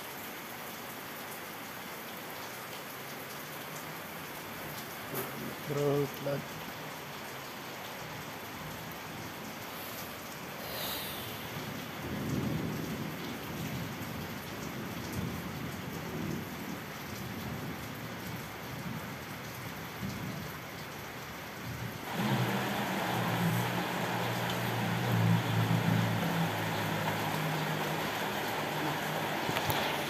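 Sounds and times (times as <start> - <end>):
rain falling: 0.0 - 30.0
steady low hum: 22.0 - 30.0
thunder rumbling: 22.0 - 30.0.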